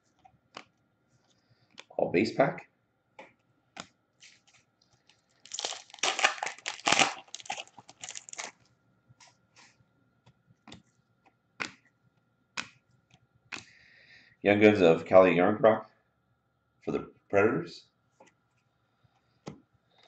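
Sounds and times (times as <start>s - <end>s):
wrapper tearing and crinkling: 5.3s - 8.6s.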